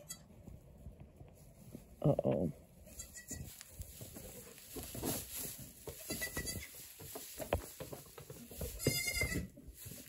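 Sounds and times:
goat bleating: 0.0 - 0.3, 2.9 - 3.6, 5.9 - 6.8, 8.7 - 9.6
rustling: 0.3 - 10.0.

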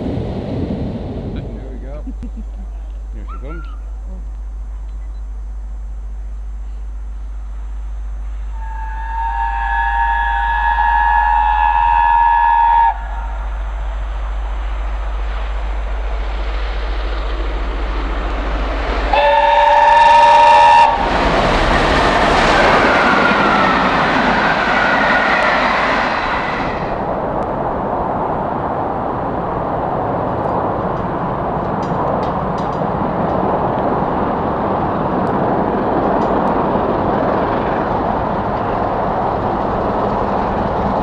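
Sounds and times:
steam train passing: 8.2 - 41.0
steam whistle: 8.4 - 13.5, 19.1 - 21.1, 22.4 - 27.0.

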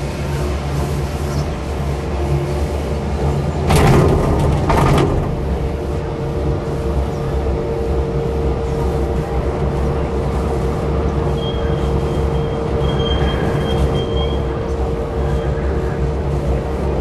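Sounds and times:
gondola cabin rumbling on cable: 0.0 - 17.0.

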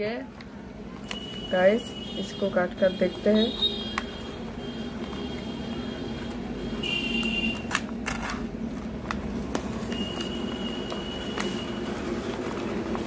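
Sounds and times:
low background hum: 0.0 - 13.0
paper rustling and crackling: 7.2 - 13.0.

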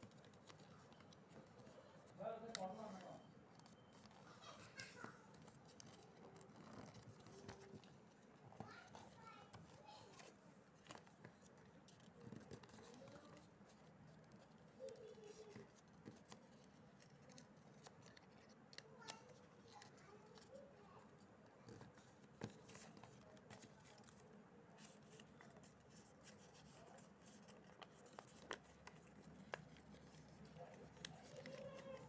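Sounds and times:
stiff paper being folded: 0.0 - 32.0.

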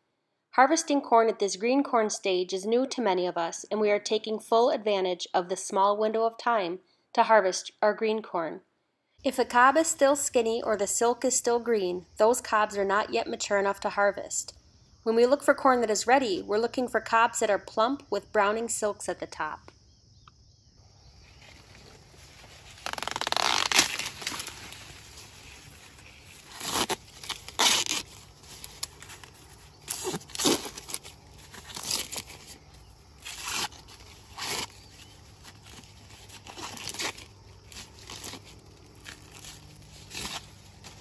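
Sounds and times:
husk leaves rustling: 21.2 - 41.0
corn husks tearing: 21.4 - 41.0.

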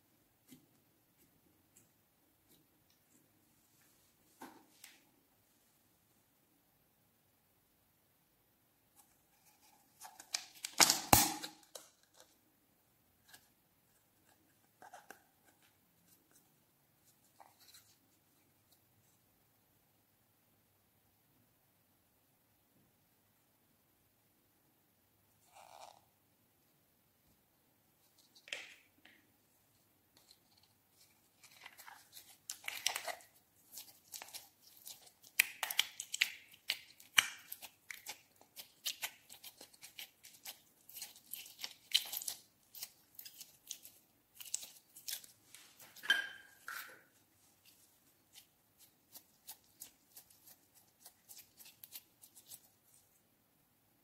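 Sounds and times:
slime squeezed by hand crackling: 32.1 - 45.3.

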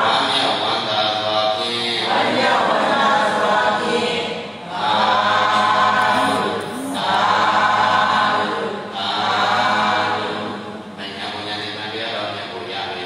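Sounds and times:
group of voices chanting: 4.7 - 9.9.

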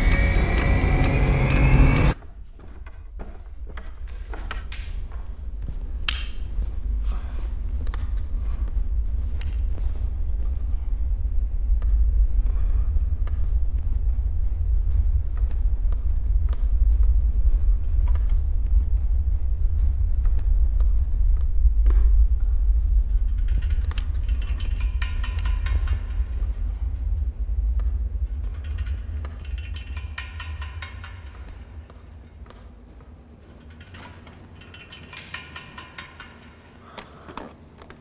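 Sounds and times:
high tone with overtones: 0.0 - 2.2
deep rumble: 0.0 - 37.2.

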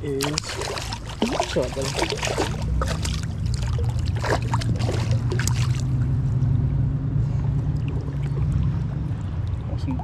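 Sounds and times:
creek water rushing: 0.0 - 6.1
hand splashing in water: 0.2 - 5.9.

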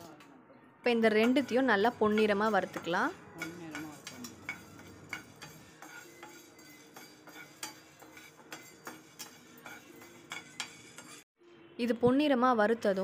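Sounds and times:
spoon scraping a pan: 1.1 - 11.3.

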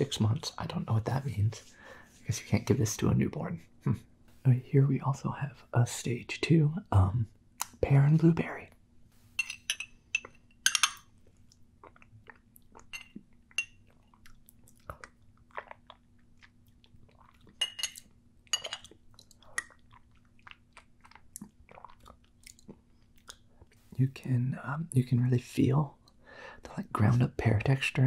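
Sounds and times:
spoon scraping glass jar: 9.3 - 11.0
wet mouth eating sounds: 11.2 - 23.9.

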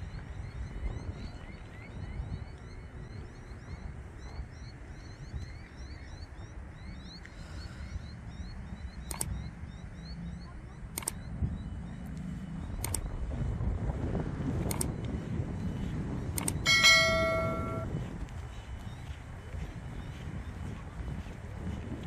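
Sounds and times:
sharp clicks: 9.0 - 9.5, 10.9 - 11.3, 12.0 - 13.2, 14.6 - 15.1, 16.3 - 17.8
chorus of rising chirps: 16.5 - 17.9.

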